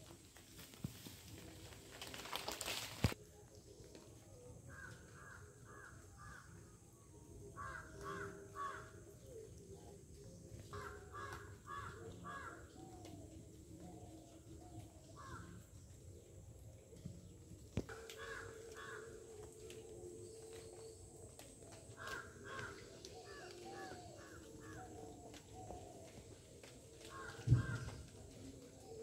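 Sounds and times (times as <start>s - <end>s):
crackling noise: 0.0s - 6.2s, 7.6s - 29.0s
harsh cawing bird calls: 10.8s - 12.7s, 17.9s - 19.1s, 22.0s - 25.0s, 27.1s - 28.0s.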